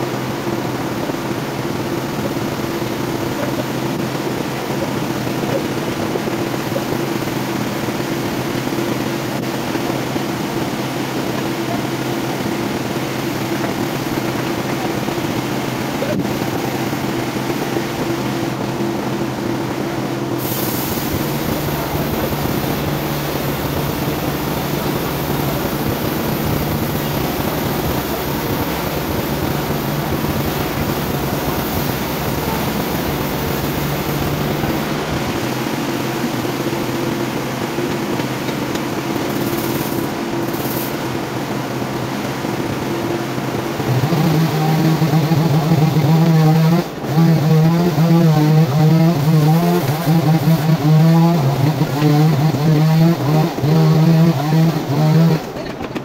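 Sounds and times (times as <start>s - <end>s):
band saw cutting timber: 43.8s - 55.7s.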